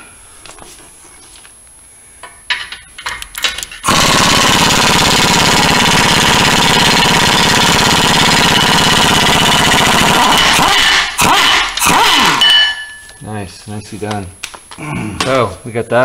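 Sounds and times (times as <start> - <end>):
pneumatic air hammer rattling: 2.6 - 12.8.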